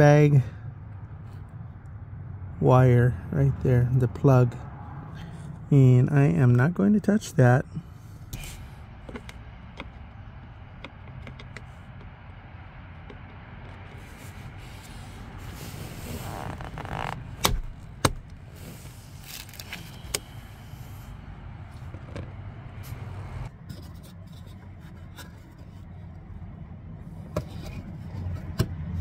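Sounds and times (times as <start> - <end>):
upholstery rustling scrape: 13.8 - 17.8, 18.4 - 21.2.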